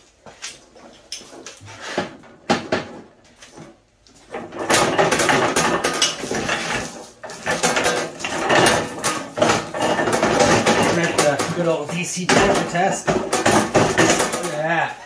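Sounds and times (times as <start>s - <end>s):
metal cart rattling on concrete: 4.2s - 15.0s
metal clanks: 4.3s - 14.9s.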